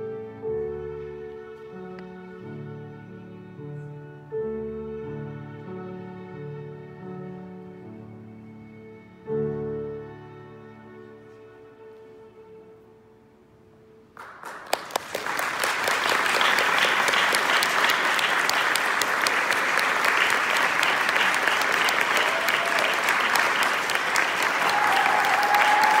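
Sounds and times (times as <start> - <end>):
audience applauding: 14.2 - 26.0
crowd calling out: 24.5 - 26.0.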